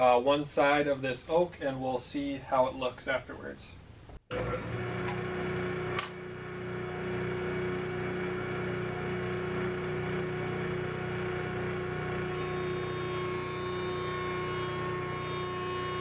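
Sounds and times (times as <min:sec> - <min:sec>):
jointer running with steady hum: 0:04.3 - 0:16.0.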